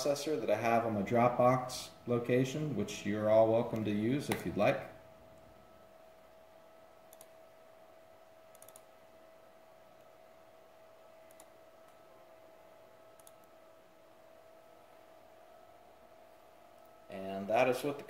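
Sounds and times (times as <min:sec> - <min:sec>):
faint steady hum: 0:00.0 - 0:18.0
computer mouse clicks: 0:07.1 - 0:07.4, 0:08.5 - 0:08.9, 0:11.3 - 0:12.0, 0:13.2 - 0:13.6.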